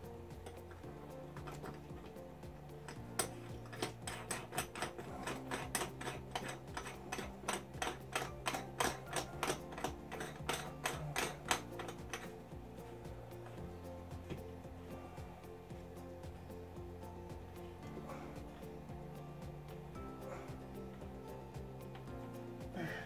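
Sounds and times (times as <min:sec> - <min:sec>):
nut threading clicks: 0:02.9 - 0:12.4.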